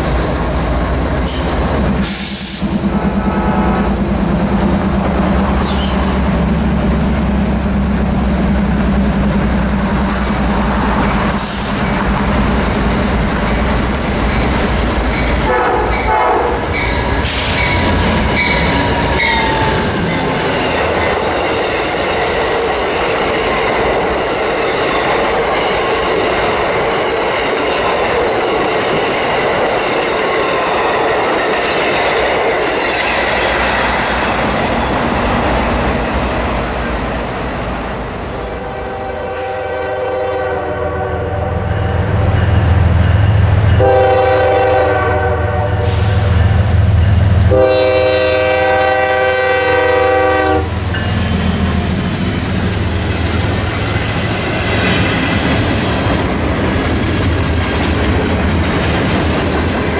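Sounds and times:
train cars rumbling and clattering: 0.0s - 59.9s
train horn blasts: 2.3s - 4.0s, 15.4s - 16.8s, 38.4s - 42.3s, 43.8s - 46.3s, 47.4s - 50.8s.

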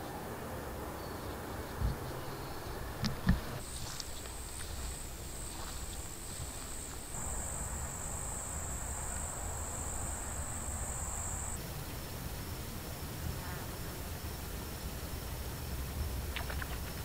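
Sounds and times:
insect high-pitched trill: 3.6s - 17.0s.

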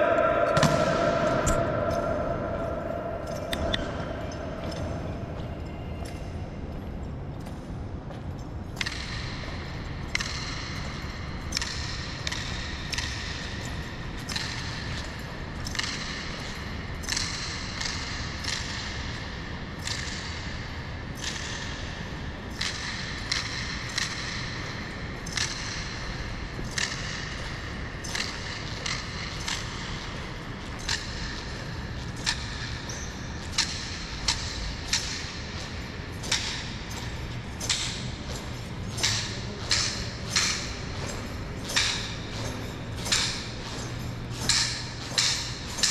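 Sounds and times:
low hum: 0.0s - 8.8s.

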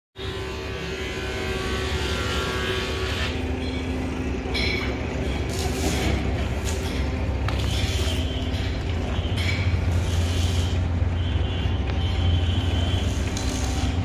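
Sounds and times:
tractor engine rumble: 3.6s - 14.0s.

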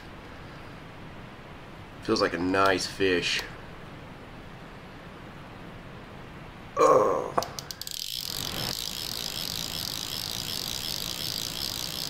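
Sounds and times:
sharp reel clicks: 7.4s - 12.0s
fishing reel drag ratcheting: 7.6s - 12.0s.

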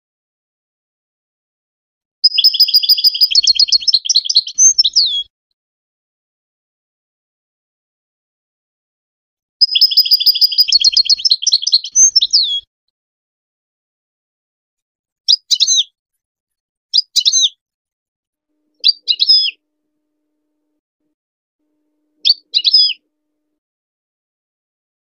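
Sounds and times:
bird twittering trill: 2.2s - 5.3s, 9.6s - 12.7s, 15.3s - 15.9s, 16.9s - 17.6s, 18.8s - 19.6s, 22.2s - 23.0s.

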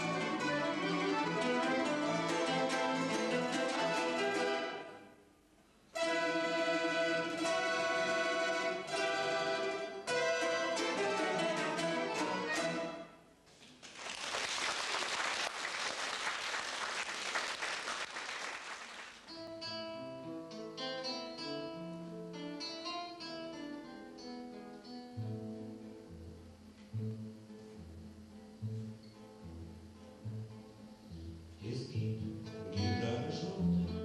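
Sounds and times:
acoustic guitars plucking melody: 0.0s - 5.2s, 5.9s - 13.4s, 19.2s - 34.0s
folk instrument ensemble: 0.0s - 5.2s, 5.8s - 13.4s
applause: 13.8s - 19.3s.

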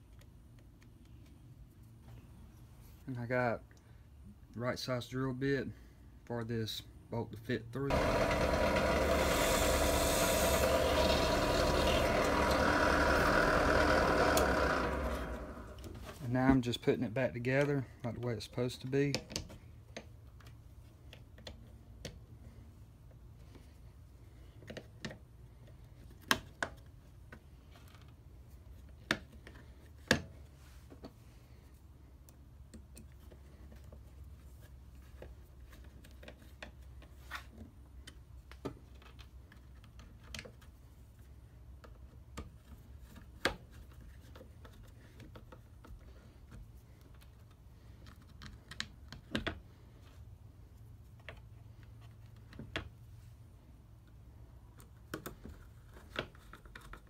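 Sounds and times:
plastic parts clicking and knocking: 35.1s - 40.7s, 41.8s - 50.2s, 54.8s - 57.0s.

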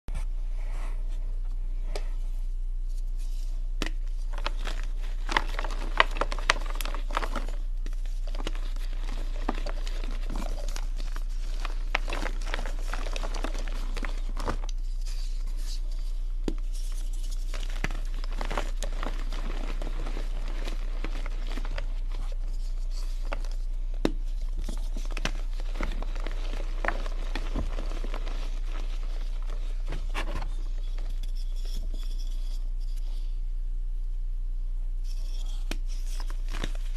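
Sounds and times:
steady low hum: 0.1s - 36.9s
chalk crunching and snapping: 3.8s - 32.0s.

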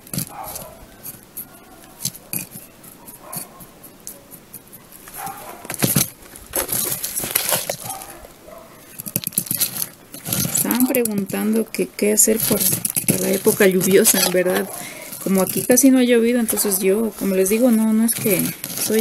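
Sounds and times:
small stones rattling: 0.0s - 19.0s
trowel scraping potting mix: 0.0s - 19.0s.

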